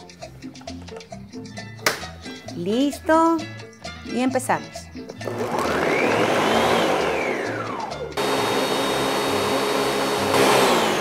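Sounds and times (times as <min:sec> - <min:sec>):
background music with low beat: 0:00.0 - 0:08.3
electric blender motor whine: 0:05.2 - 0:11.0.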